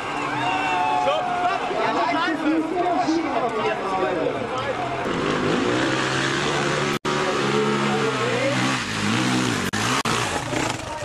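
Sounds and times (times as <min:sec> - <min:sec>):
dirt bike engine revving: 0:05.0 - 0:11.0.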